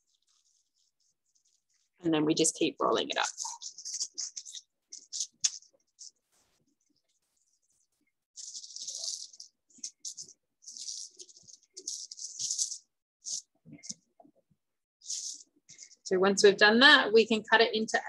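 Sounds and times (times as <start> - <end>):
plastic sheet crinkling: 0.0 - 2.0, 2.9 - 14.0, 15.0 - 16.0.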